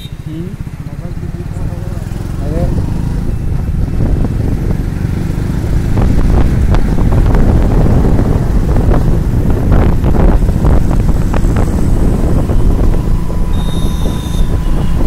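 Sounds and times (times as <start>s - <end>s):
vehicle rumble: 0.0s - 15.0s
wind buffeting microphone: 1.6s - 15.0s.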